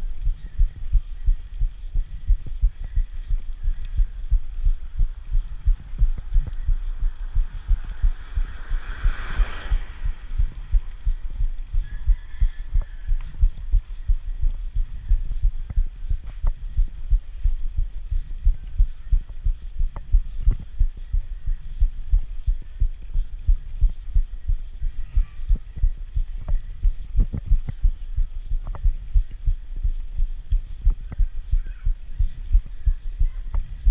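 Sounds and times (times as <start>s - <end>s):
dull low thumps on microphone: 0.0s - 33.9s.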